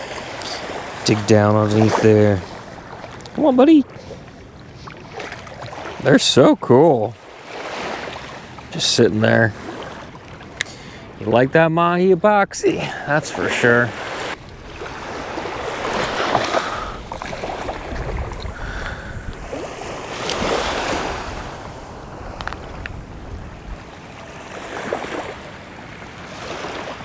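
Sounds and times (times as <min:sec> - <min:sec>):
small waves washing: 0:00.0 - 0:27.0
wind rumbling on microphone: 0:14.3 - 0:26.2.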